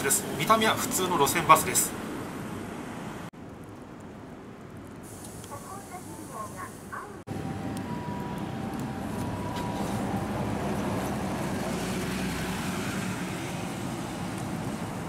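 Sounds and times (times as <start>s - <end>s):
traffic hum: 0.0s - 15.0s
bus engine pulling away: 7.3s - 15.0s.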